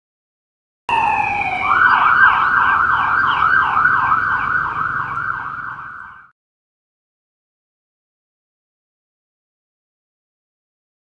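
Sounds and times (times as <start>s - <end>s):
police siren wailing and yelping: 0.9s - 6.3s.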